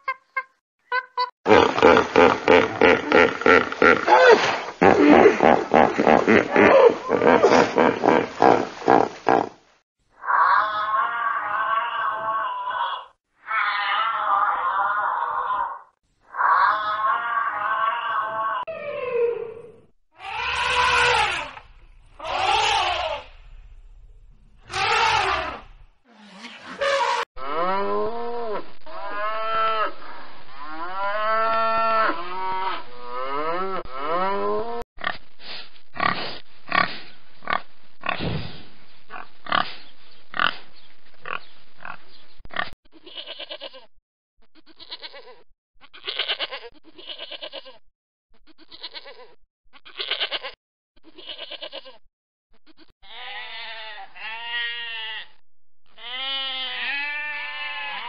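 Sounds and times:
pigs grunting: 1.5 - 9.6, 36.0 - 38.3, 39.1 - 40.6, 41.2 - 42.8
long squealing calls: 20.2 - 21.6, 22.2 - 23.4, 24.6 - 25.6
sheep bleating: 20.2 - 21.6, 43.0 - 43.9, 44.8 - 47.8, 48.7 - 52.0, 53.0 - 58.0.

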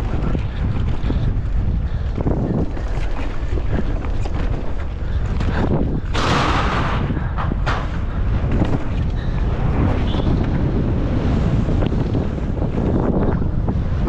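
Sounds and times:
wind buffeting microphone: 0.0 - 14.0
bike rolling over steel plates: 2.2 - 10.6
bike knocks: 3.8 - 9.2.

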